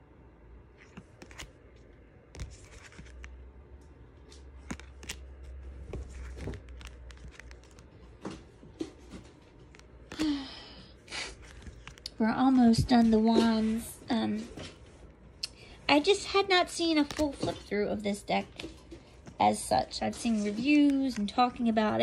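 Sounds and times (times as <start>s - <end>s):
cards snapping: 0.8s - 1.6s, 2.3s - 3.4s, 4.2s - 8.0s, 9.3s - 10.4s, 11.3s - 12.2s
cards scraping together: 0.8s - 3.4s, 4.2s - 8.2s, 11.1s - 12.1s.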